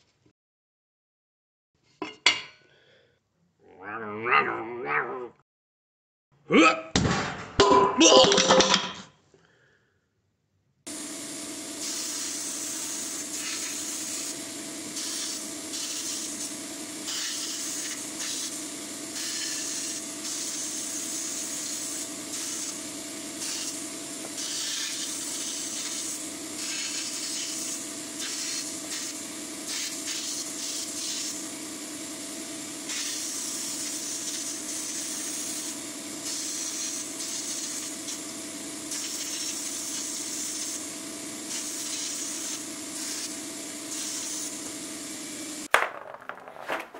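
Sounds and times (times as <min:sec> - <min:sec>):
sandblasting gun hissing: 0:10.9 - 0:45.7.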